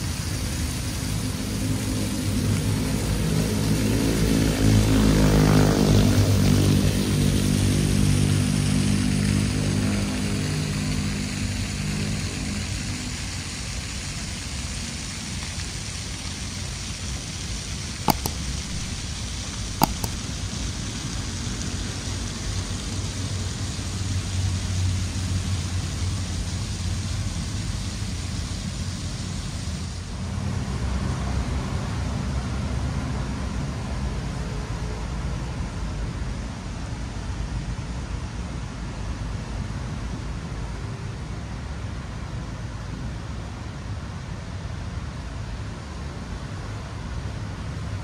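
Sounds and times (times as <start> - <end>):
steady outdoor hiss: 0.0 - 48.0
distant city traffic rumble: 15.8 - 37.2
sharp clicks: 18.1 - 20.4.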